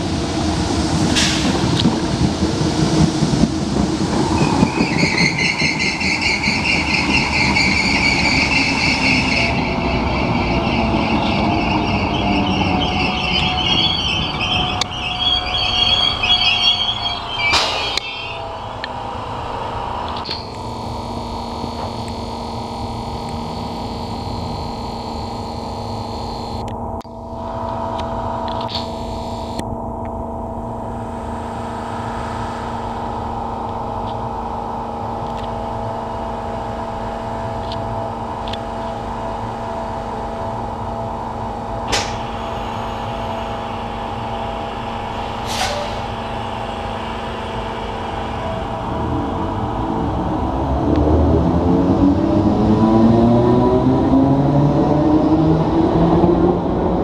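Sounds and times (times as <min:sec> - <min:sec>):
train equipment humming: 0:00.0 - 0:57.0
high thin whine: 0:06.4 - 0:52.6
brief sharp sounds: 0:16.8 - 0:18.5.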